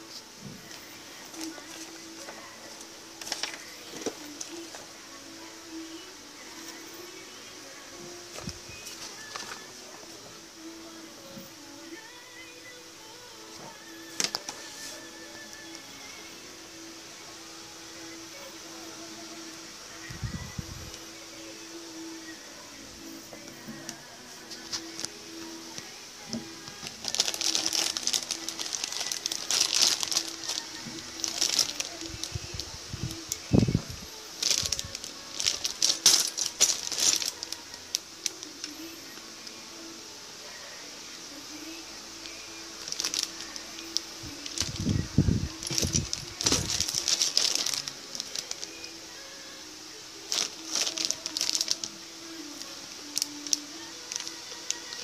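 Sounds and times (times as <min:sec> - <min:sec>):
plastic bag crinkling: 0:03.2 - 0:04.8, 0:26.6 - 0:33.8, 0:34.4 - 0:38.8, 0:42.2 - 0:48.9, 0:50.3 - 0:52.0, 0:53.0 - 0:55.0.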